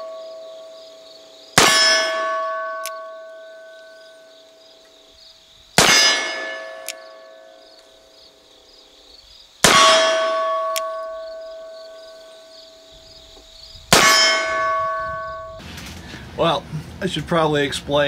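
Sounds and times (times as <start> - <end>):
metallic ringing: 0.0 - 4.4, 5.8 - 7.6, 9.6 - 12.8, 13.9 - 15.7.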